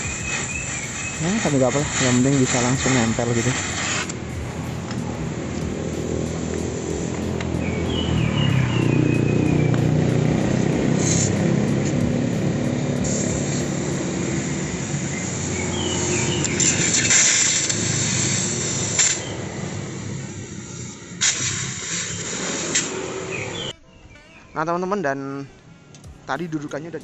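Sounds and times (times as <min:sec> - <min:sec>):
steady low rumble: 0:00.0 - 0:15.7
welding torch hissing: 0:00.0 - 0:23.7.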